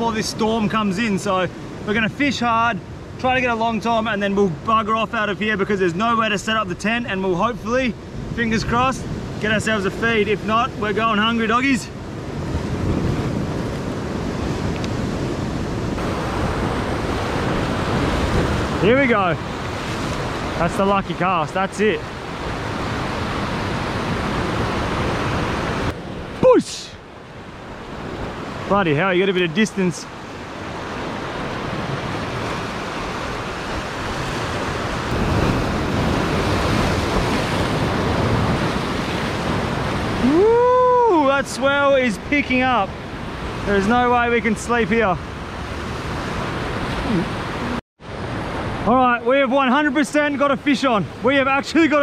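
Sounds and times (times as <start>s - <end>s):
surf washing over rocks: 0.0s - 52.0s
wind buffeting microphone: 7.4s - 26.6s, 27.3s - 48.9s.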